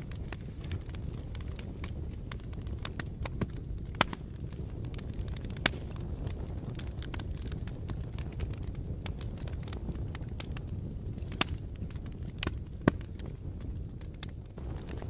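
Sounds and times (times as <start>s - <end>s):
fire crackling and popping: 0.0s - 15.0s
fire flames rumbling: 0.0s - 15.0s.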